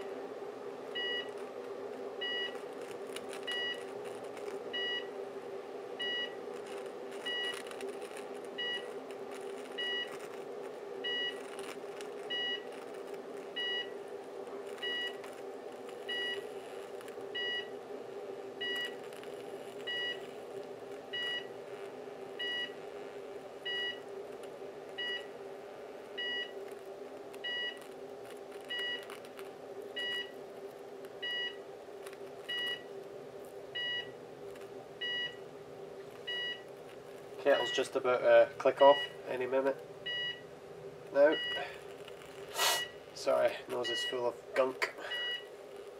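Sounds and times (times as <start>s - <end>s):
electric arc buzzing: 5.9s - 40.0s, 41.0s - 43.4s.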